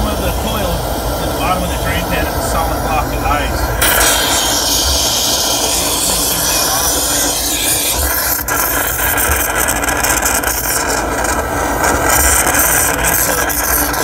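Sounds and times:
gas torch flame hissing: 0.0 - 14.0.

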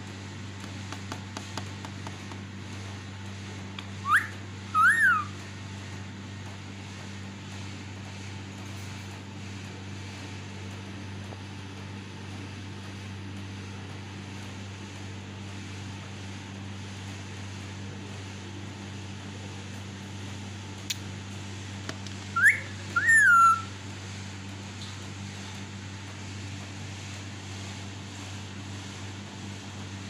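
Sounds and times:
steady low hum: 0.0 - 30.0
parakeet whistled calls: 4.0 - 5.4, 22.4 - 23.7.

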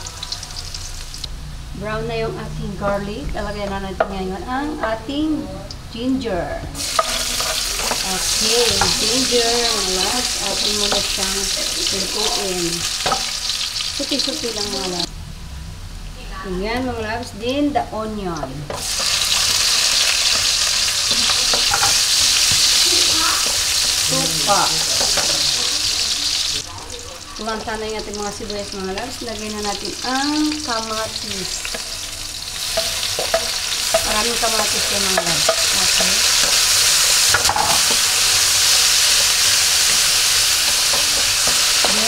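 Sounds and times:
vegetables sizzling in hot oil: 0.0 - 1.5, 6.8 - 15.1, 18.4 - 42.0
spatula scraping a wok: 6.8 - 13.9, 18.7 - 26.6, 31.6 - 42.0.

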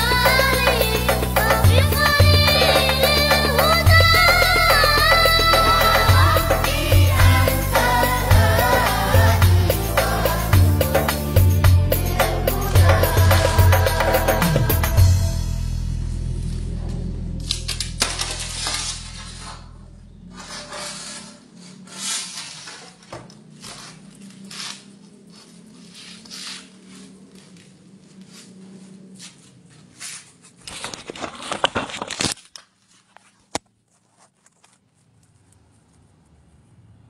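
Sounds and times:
background music: 0.0 - 16.6
angle grinder scraping glass: 17.4 - 23.0.

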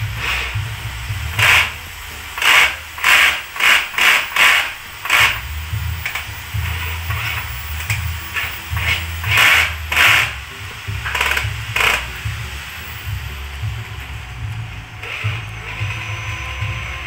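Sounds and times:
cordless drill driving screw: 1.3 - 1.8, 2.4 - 5.4, 6.0 - 10.4, 11.1 - 12.1.

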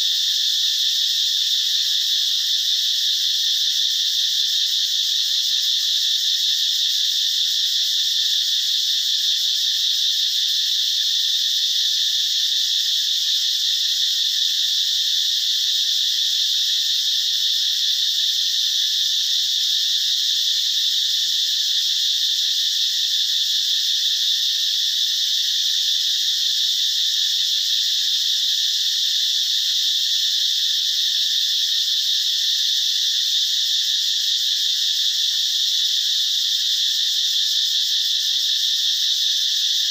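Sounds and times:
insect chorus buzzing: 0.0 - 39.9.

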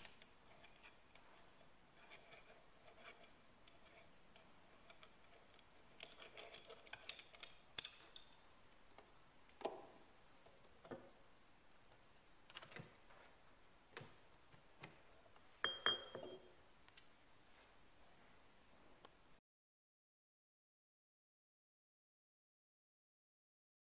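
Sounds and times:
metal parts clicking and clinking: 0.0 - 8.4.

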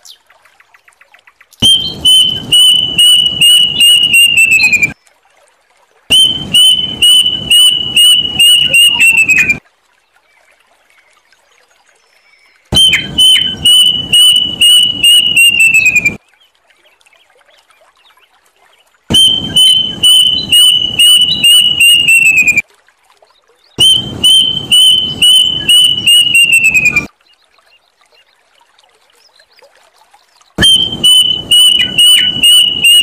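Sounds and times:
cuckoo calling: 1.6 - 5.0, 6.1 - 9.6, 12.7 - 16.2, 19.1 - 22.6, 23.8 - 27.1, 30.6 - 33.0.

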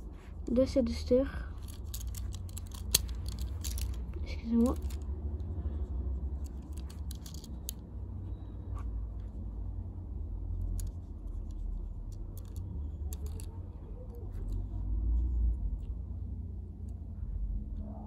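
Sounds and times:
toy car clicks and scratches: 1.5 - 7.9, 10.5 - 15.0.

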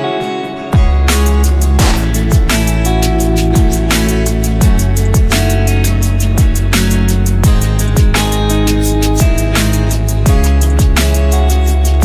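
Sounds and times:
music with heavy beat: 0.2 - 12.0
deep bass thumps: 0.8 - 2.7
drum and cymbal strikes: 1.1 - 5.6.

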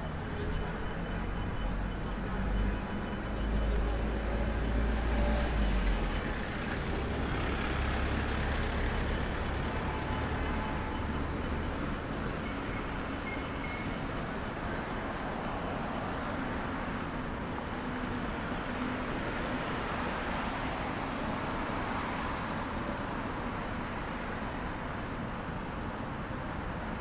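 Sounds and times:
city road traffic: 0.0 - 27.0.

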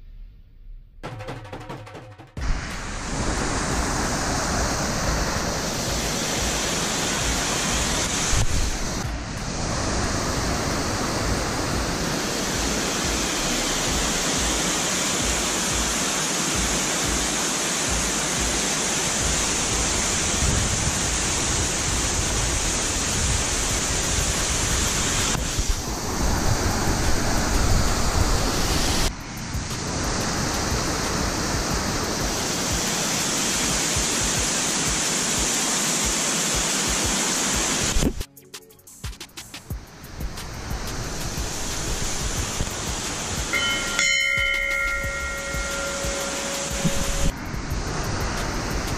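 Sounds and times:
waterfall rushing over rocks: 2.4 - 38.2, 39.7 - 48.9.

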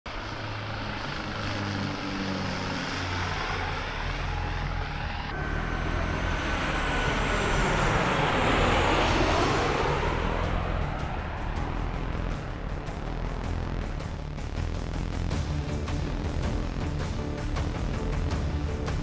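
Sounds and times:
jet airliner passing overhead: 0.1 - 14.2
propeller plane humming: 0.1 - 19.0.

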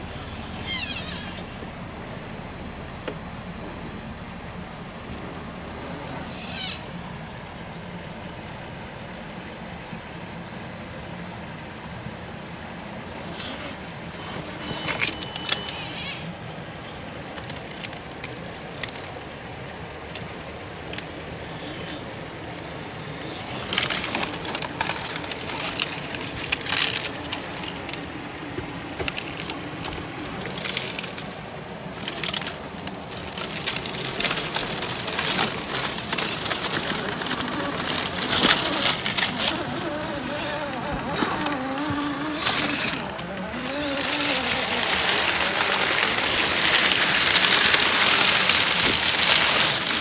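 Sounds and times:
dry leaves crunching: 23.5 - 28.1, 28.9 - 50.0
toy car scraping on rock: 29.0 - 50.0.

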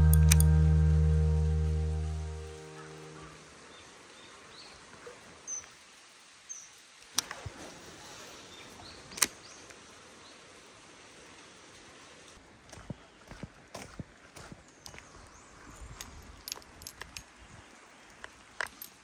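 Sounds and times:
sharp clicks: 0.0 - 0.6
background music: 0.0 - 3.4.

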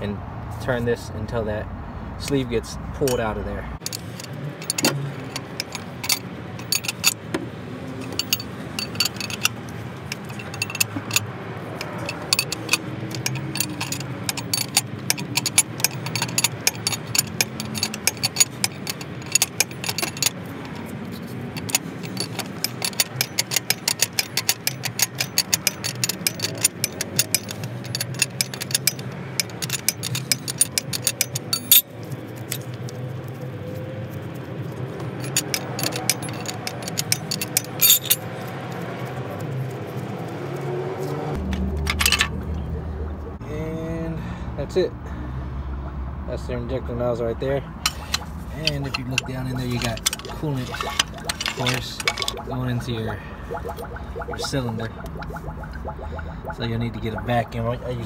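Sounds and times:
ratcheting wrench clicking: 8.0 - 20.9, 21.6 - 31.9, 35.2 - 38.2, 47.8 - 56.2
low hum: 47.9 - 58.0.

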